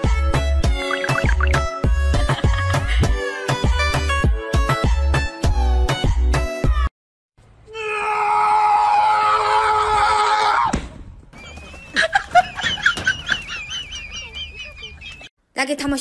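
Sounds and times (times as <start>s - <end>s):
loud scream: 7.7s - 10.8s.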